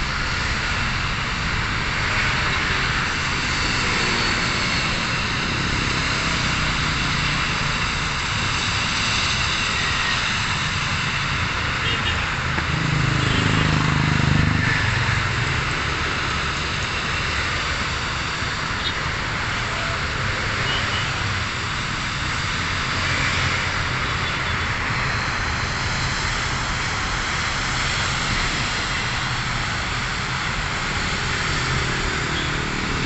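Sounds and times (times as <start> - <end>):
distant aircraft engine rumble: 0.0 - 33.0.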